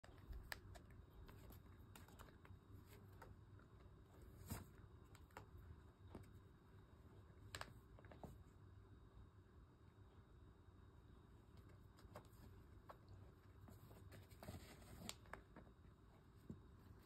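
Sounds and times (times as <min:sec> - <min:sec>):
cat pawing on carpet: 0:11.5 - 0:17.0.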